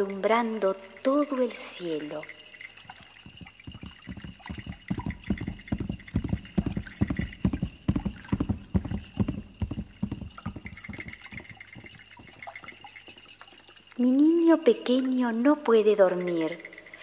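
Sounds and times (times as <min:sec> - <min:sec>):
horse hooves trotting: 0:02.6 - 0:13.9.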